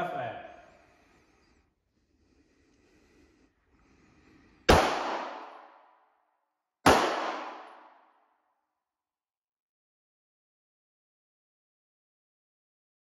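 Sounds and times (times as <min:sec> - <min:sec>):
pistol shots with echo: 0:04.7 - 0:05.8, 0:06.8 - 0:08.0.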